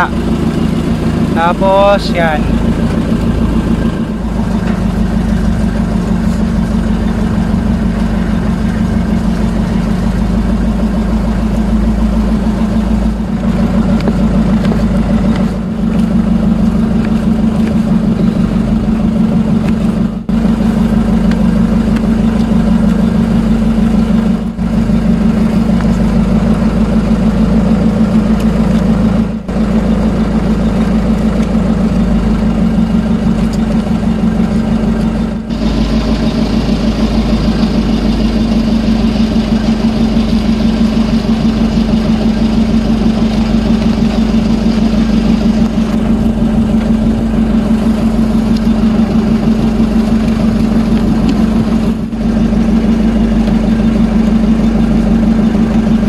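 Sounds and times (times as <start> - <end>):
boat engine droning: 0.0 - 56.0.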